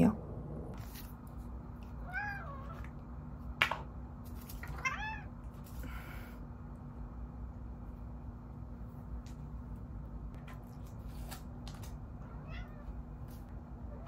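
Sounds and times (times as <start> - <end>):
cat meowing: 2.0 - 2.8, 4.6 - 5.3, 12.3 - 13.0.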